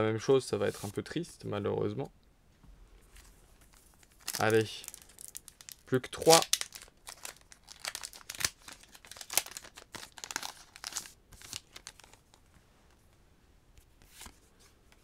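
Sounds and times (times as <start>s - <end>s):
foil wrapper crinkling: 3.6s - 12.4s.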